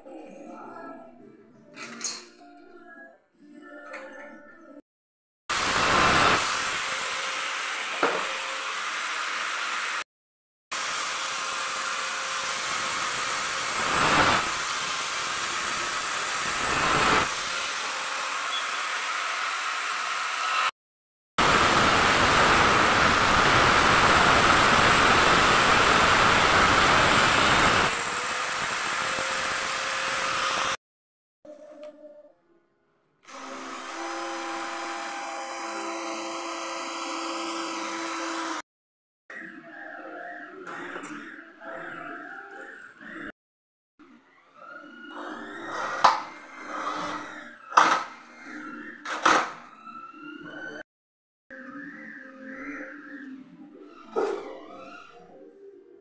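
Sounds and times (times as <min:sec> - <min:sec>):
angle grinder sanding metal: 0:10.8 - 0:20.7
cordless drill whirring: 0:10.8 - 0:20.8, 0:21.7 - 0:30.8, 0:33.3 - 0:38.7.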